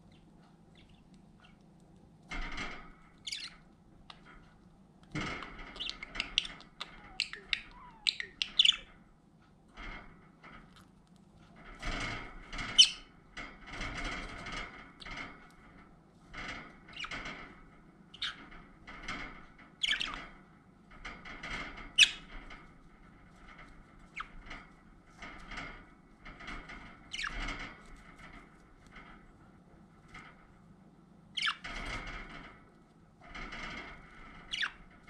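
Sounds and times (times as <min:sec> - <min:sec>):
high-pitched squeaky bird calls: 0:03.2 - 0:03.6, 0:05.7 - 0:08.9, 0:12.8 - 0:13.0, 0:19.8 - 0:20.2, 0:22.0 - 0:22.3, 0:27.1 - 0:27.4, 0:31.4 - 0:31.6, 0:34.5 - 0:34.8
budgerigars chattering: 0:03.3 - 0:03.5, 0:05.8 - 0:08.9.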